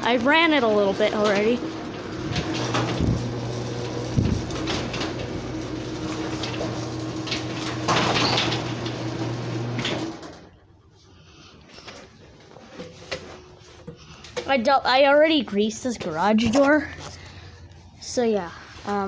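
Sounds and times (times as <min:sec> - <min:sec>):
garage door opener motor humming: 0:00.0 - 0:10.7.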